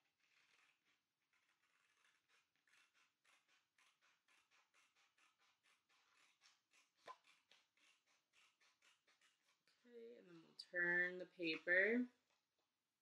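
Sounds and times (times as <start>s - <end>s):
scissors snipping cardboard: 0.2s - 9.7s.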